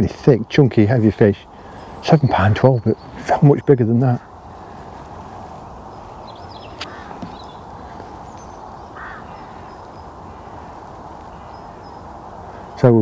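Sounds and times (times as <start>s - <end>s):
noisy bird call: 0.0s - 13.0s
wind: 0.0s - 13.0s
high bird chirps: 5.3s - 12.8s.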